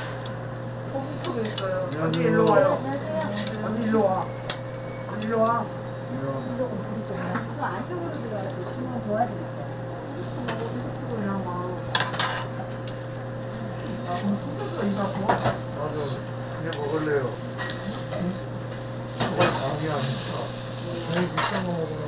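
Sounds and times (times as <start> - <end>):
food sizzling on griddle: 0.0 - 22.0
metal spatula scraping griddle: 13.6 - 21.7.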